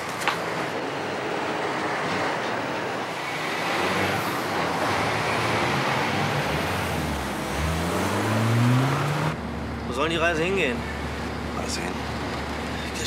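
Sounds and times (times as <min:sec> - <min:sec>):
road noise: 0:00.0 - 0:13.0
truck engine pulling away: 0:03.3 - 0:09.9.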